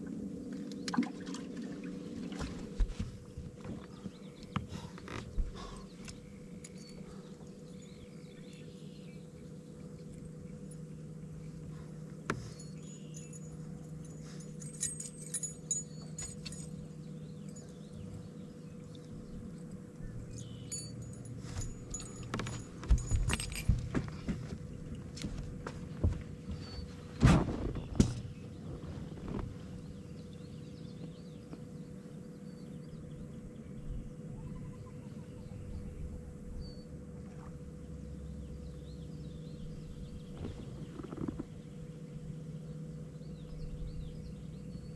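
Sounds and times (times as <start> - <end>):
steady low hum: 0.0 - 44.9
knocks and thumps on boat deck: 21.6 - 29.6.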